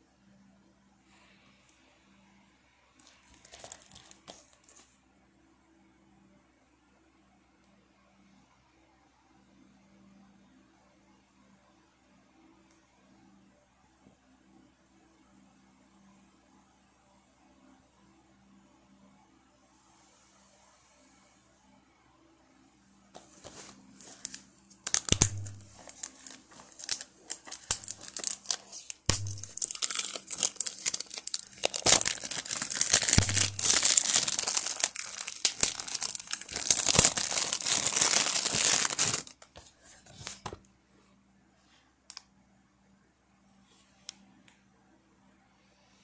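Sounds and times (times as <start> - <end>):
plastic wrap crackling: 3.0 - 4.8, 23.2 - 39.6.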